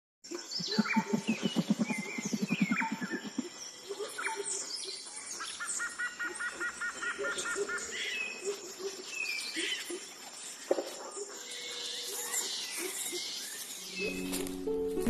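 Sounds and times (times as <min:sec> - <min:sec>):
birds singing and chirping: 0:00.4 - 0:14.3
low fast pulsing call: 0:00.6 - 0:03.5.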